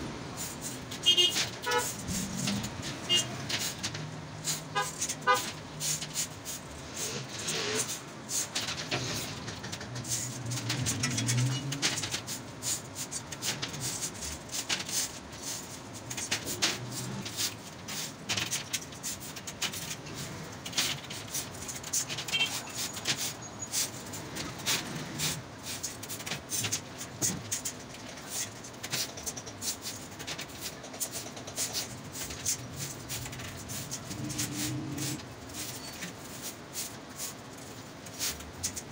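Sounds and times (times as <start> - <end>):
steel wires clicking and clattering: 0.4 - 38.9.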